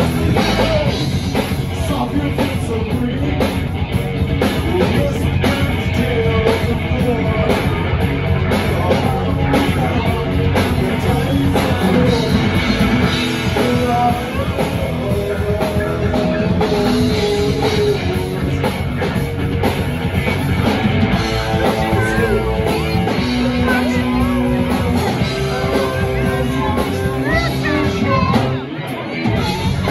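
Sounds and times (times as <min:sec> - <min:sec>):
drum kit: 0:00.0 - 0:29.9
electric guitars: 0:00.0 - 0:29.9
person singing: 0:04.4 - 0:07.8, 0:08.5 - 0:18.8, 0:21.4 - 0:29.9.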